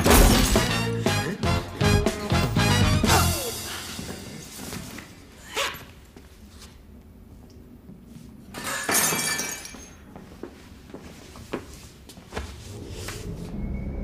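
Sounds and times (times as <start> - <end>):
glass crashing with ringing shards: 0.0 - 0.8, 8.6 - 10.0.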